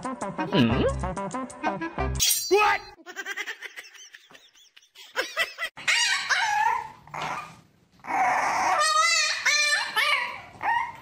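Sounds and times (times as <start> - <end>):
puppy whining and yelping: 5.8 - 11.0.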